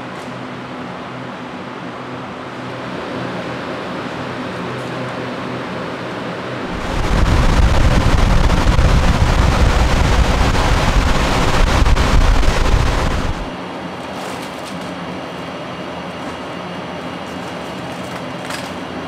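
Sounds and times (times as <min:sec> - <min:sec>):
machinery hum: 0:06.7 - 0:13.5
rush of blown air: 0:06.7 - 0:13.5
wind rumble on microphone: 0:06.7 - 0:13.5.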